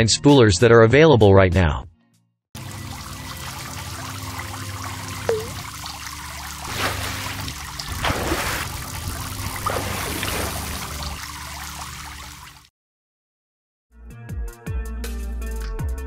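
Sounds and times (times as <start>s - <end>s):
water trickling: 2.6s - 12.7s.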